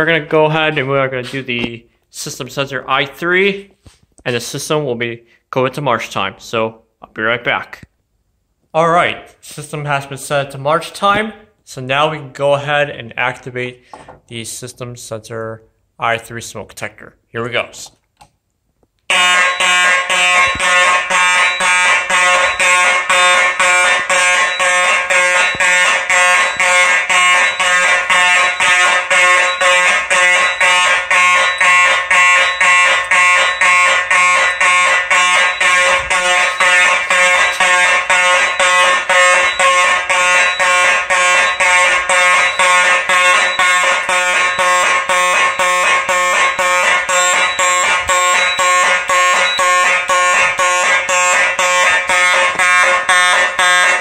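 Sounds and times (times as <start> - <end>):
fire alarm horn pulsing: 19.1 - 54.0.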